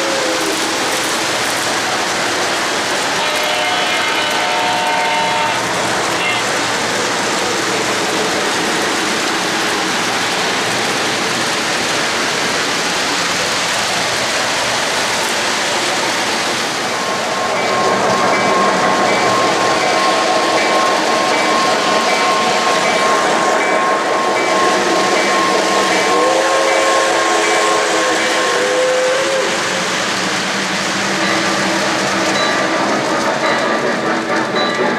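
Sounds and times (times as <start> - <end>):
model trains rumbling on track: 0.0 - 34.9
locomotive horn: 3.2 - 6.6, 26.0 - 29.6.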